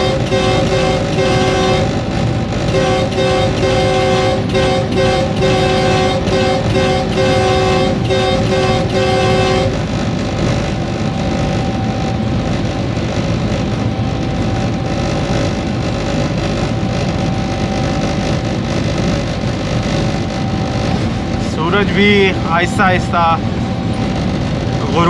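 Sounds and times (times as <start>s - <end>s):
locomotive horn blasts: 0.0s - 9.9s
train running at speed: 0.0s - 25.0s.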